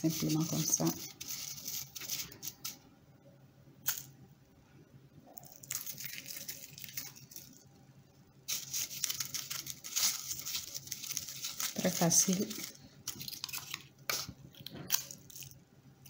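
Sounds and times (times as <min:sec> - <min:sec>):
fingers rustling grated coconut: 0:00.0 - 0:02.8, 0:05.5 - 0:07.6, 0:08.5 - 0:15.6.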